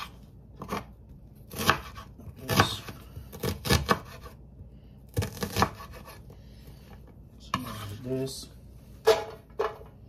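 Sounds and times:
knife chopping on wooden board: 0:00.0 - 0:00.9, 0:01.5 - 0:04.4, 0:05.1 - 0:06.3.

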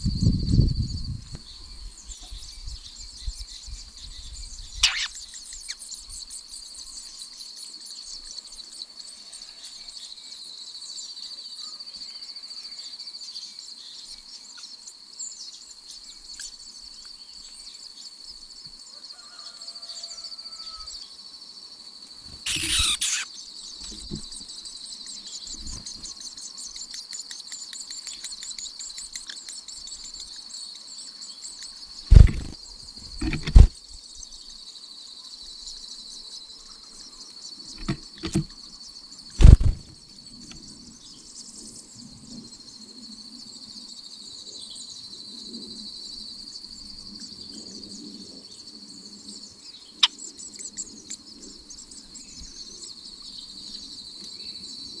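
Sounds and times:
insects buzzing and trilling: 0:00.0 - 0:55.0
sharp click: 0:22.5 - 0:23.2, 0:32.1 - 0:32.6, 0:33.2 - 0:33.7, 0:37.8 - 0:38.5, 0:39.4 - 0:39.8.

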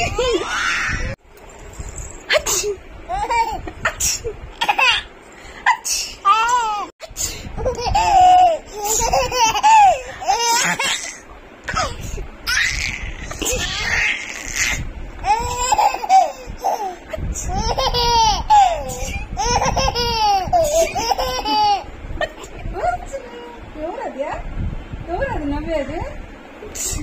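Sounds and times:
baby laughing: 0:07.6 - 0:22.5.

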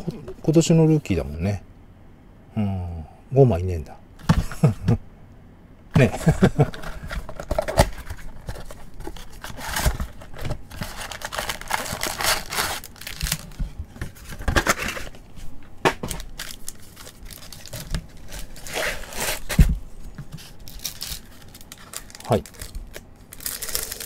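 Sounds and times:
plastic crinkling and rustling: 0:06.4 - 0:24.0
cardboard tearing: 0:06.7 - 0:13.6, 0:16.4 - 0:19.7.

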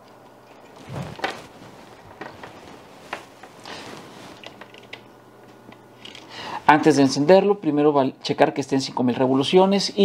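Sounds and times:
power cord rustling: 0:00.5 - 0:06.3.

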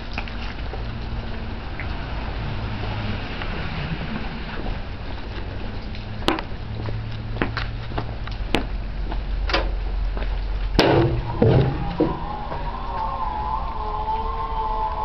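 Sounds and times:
steady low rumble: 0:04.0 - 0:15.0
wavering siren: 0:10.8 - 0:15.0.

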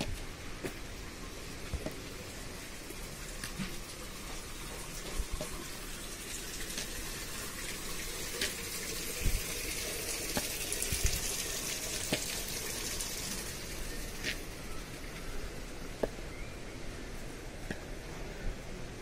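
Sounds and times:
flowing water rushing: 0:00.0 - 0:19.0
footsteps on stone steps: 0:03.4 - 0:05.7, 0:14.2 - 0:14.4.

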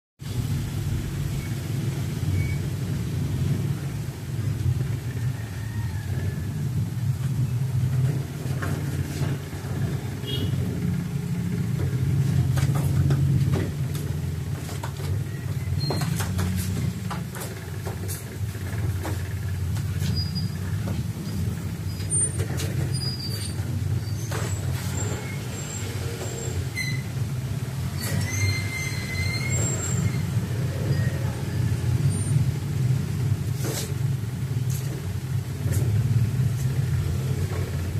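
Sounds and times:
low engine rumble: 0:00.2 - 0:37.9.

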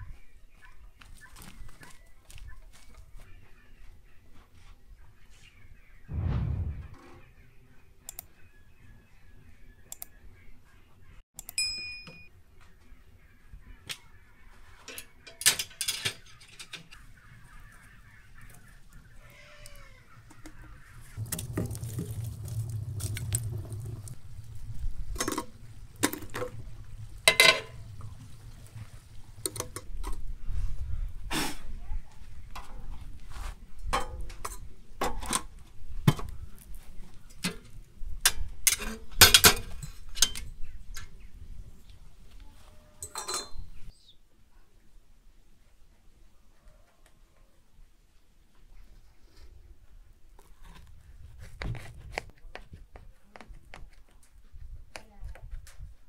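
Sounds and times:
low rumble: 0:06.1 - 0:07.0, 0:21.2 - 0:25.2
metal tongs shifting burning logs: 0:21.2 - 0:30.2, 0:37.3 - 0:40.5.

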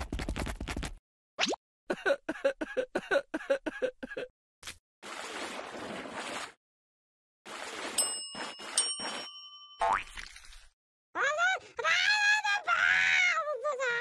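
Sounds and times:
small brass bell ding: 0:08.0 - 0:10.0.

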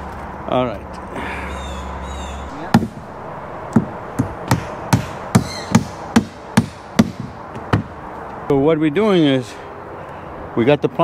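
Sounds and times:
hammer driving nails into plywood: 0:04.5 - 0:07.9.

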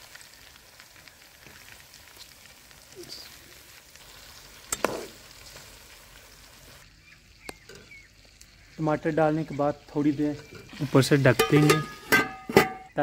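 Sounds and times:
food sizzling in hot oil: 0:00.0 - 0:13.0
spoon clanking on pan: 0:11.3 - 0:12.9.

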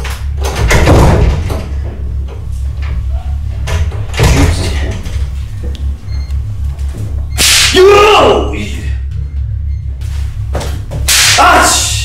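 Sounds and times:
low steady drone: 0:00.0 - 0:12.0.

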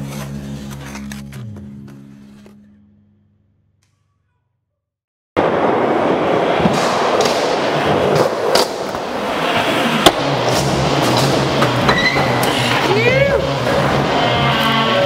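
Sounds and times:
skateboard wheels rolling on ramps: 0:05.4 - 0:15.0.

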